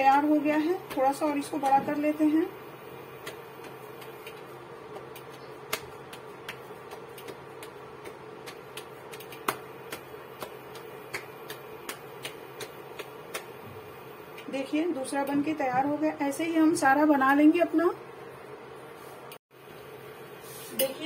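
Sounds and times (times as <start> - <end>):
hands patting dough: 0.0 - 14.6
steady hum: 0.0 - 21.0.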